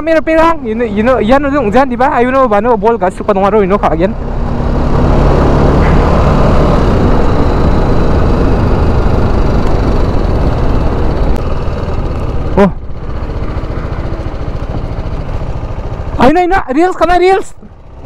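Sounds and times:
motorcycle engine running: 0.0 - 18.0
short pitched sound: 5.5 - 7.8.

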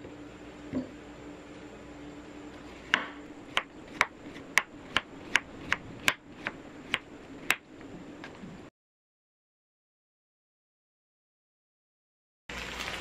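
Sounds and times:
knife chopping on wooden board: 2.9 - 7.6.

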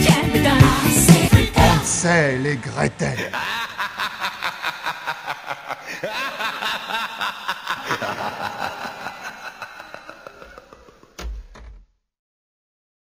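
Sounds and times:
background music with beat: 0.0 - 2.0
person chuckling: 3.1 - 11.3.

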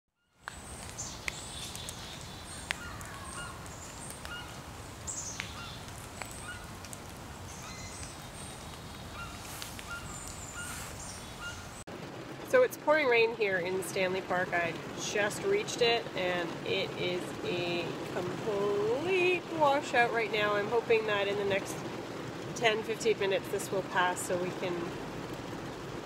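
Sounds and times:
birds chirping: 0.2 - 11.9
low background hum: 0.5 - 26.0.

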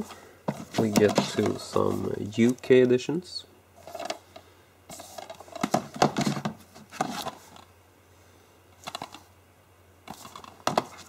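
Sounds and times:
plastic cases clicking and clattering: 0.5 - 2.6, 4.9 - 7.7, 8.8 - 9.3, 10.1 - 11.0.

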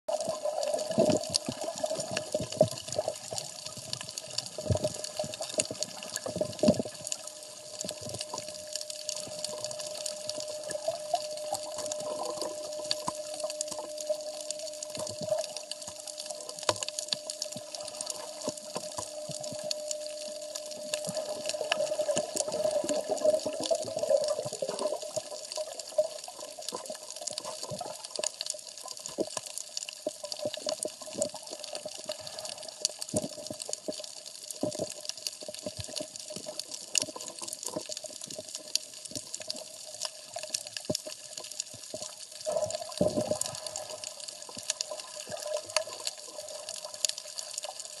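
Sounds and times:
bubbling: 0.1 - 48.0
underwater crackle of clicks: 0.1 - 48.0
steady hum: 6.8 - 24.2.

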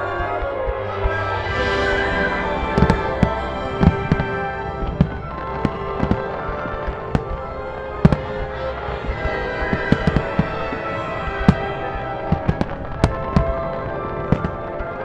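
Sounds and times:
music with sustained tones: 0.0 - 15.0
firework shells bursting: 2.8 - 14.7.

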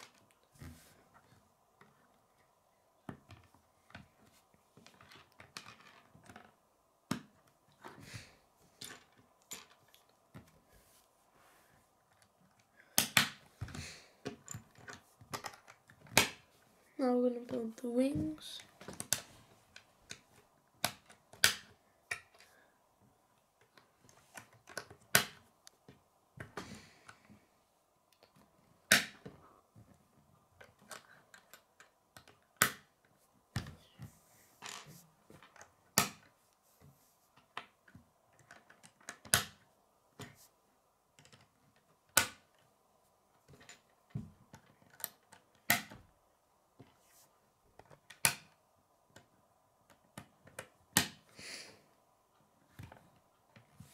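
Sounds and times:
plastic pieces snapping together: 12.6 - 13.5, 20.8 - 22.4.

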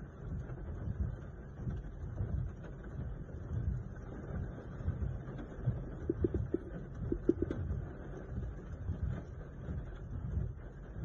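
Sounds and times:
car and rain rumble: 0.0 - 11.0
low thumps: 6.0 - 7.7.

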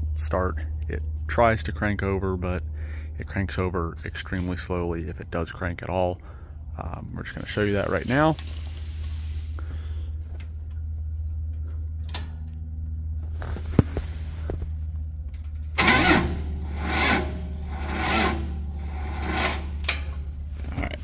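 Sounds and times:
engine cranking slowly on starter: 15.4 - 20.3.

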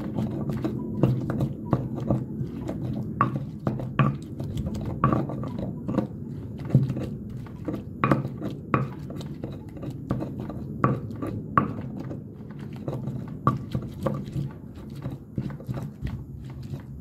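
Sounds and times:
stone knocking on stone: 0.0 - 12.0
stone grinding: 0.0 - 17.0.

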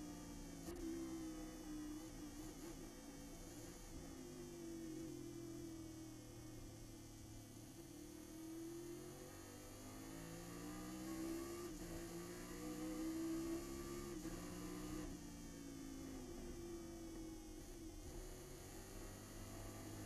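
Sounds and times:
race car engine: 8.3 - 20.0.

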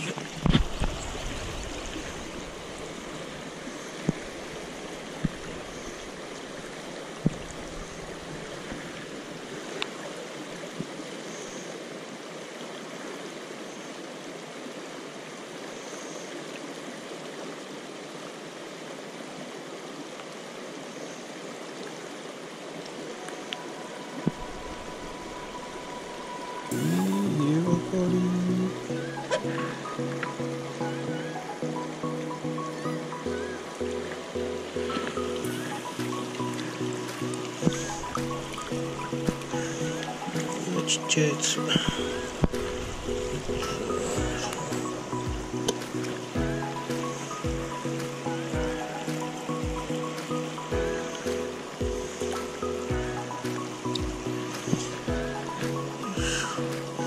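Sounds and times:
river running over stones: 0.0 - 57.0.

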